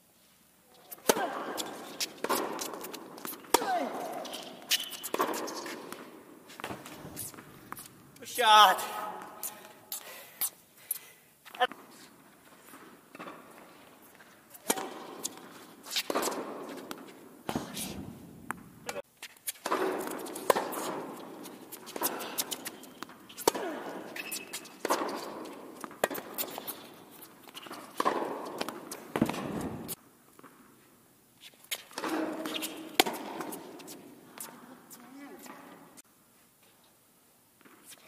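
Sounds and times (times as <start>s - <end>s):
tennis racket strikes: 0.9s - 7.9s, 14.6s - 30.0s, 31.8s - 34.1s
tennis ball bouncing: 0.9s - 8.2s, 12.7s - 19.0s, 19.6s - 30.6s, 31.7s - 34.6s.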